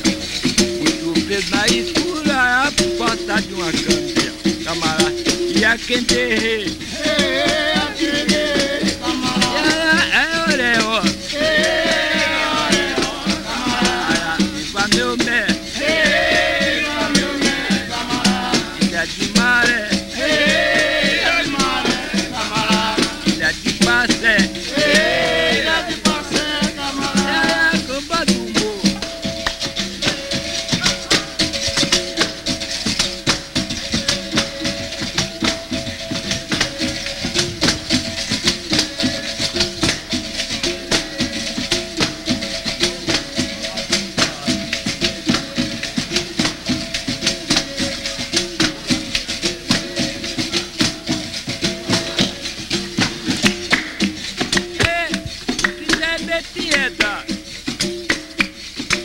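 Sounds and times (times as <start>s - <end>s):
berimbau: 0.0s - 59.0s
frame drum rhythm: 0.0s - 59.0s
shaken rattle: 0.0s - 59.0s
person singing: 0.8s - 29.2s, 54.6s - 57.4s.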